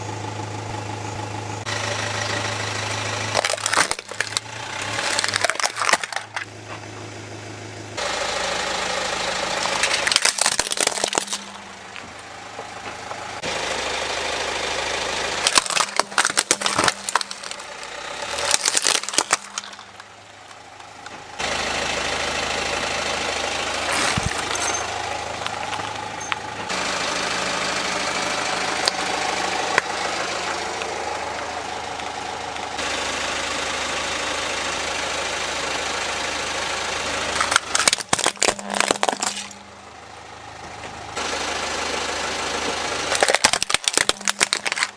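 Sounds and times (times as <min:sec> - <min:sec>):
car engine idling: 0:00.0 - 0:44.9
plastic cracking and crunching: 0:03.4 - 0:06.5, 0:09.6 - 0:12.1, 0:15.4 - 0:20.6, 0:23.9 - 0:24.8, 0:37.4 - 0:39.6, 0:43.1 - 0:44.9.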